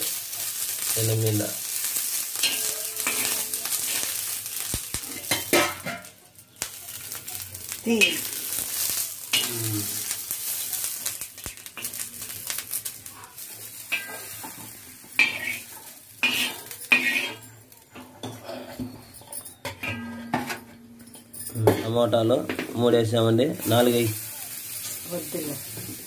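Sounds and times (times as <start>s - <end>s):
chillies sizzling in oil: 0.0s - 26.0s
spoon scraping pan: 13.9s - 18.4s.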